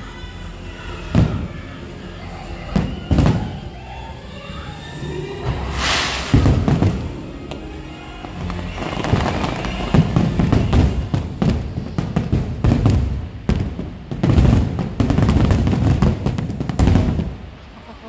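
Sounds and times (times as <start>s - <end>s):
music playing: 0.0s - 11.8s
fireworks bursting with deep booms: 1.1s - 1.5s, 2.7s - 3.6s, 5.6s - 17.6s.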